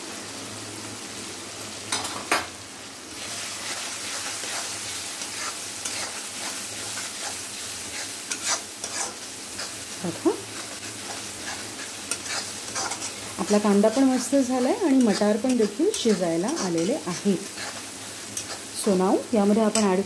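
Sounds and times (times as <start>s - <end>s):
vegetables sizzling in hot oil: 0.0s - 20.0s
metal spatula scraping pan: 3.7s - 9.8s, 10.5s - 18.8s.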